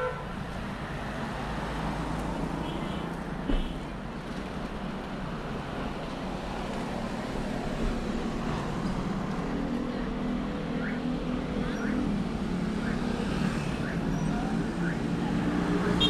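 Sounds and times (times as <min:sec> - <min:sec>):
street traffic hum: 0:00.0 - 0:16.0
thump: 0:03.4 - 0:03.8.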